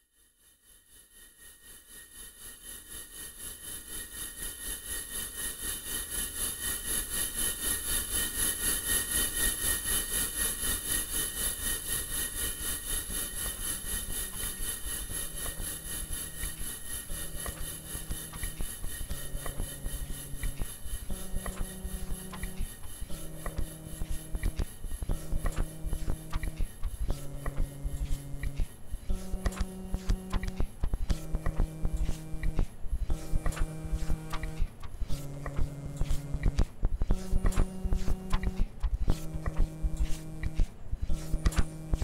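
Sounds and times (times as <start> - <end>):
pulsing hissing drone: 9.4 - 32.6.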